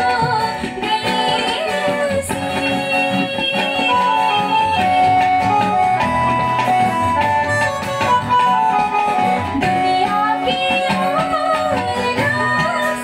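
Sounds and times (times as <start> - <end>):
woman singing: 0.0 - 5.4, 9.5 - 13.0
acoustic guitar: 0.0 - 13.0.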